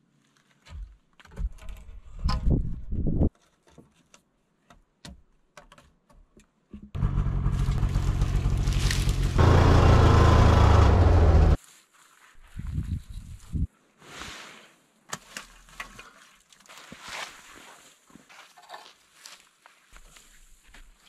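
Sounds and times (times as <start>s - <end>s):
snowmobile engine revving: 7.0s - 11.6s.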